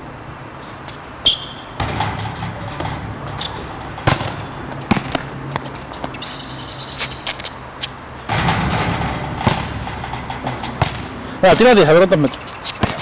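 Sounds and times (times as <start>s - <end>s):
basketball clanking off metal rim: 1.3s - 5.3s, 8.2s - 11.8s, 12.8s - 13.0s
ball thudding on court: 1.8s - 6.1s, 8.3s - 11.7s, 12.8s - 13.0s.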